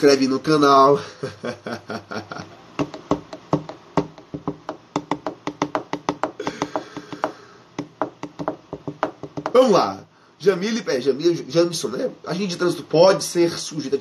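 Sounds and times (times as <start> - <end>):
fingers tapping on hard surface: 2.8 - 9.6.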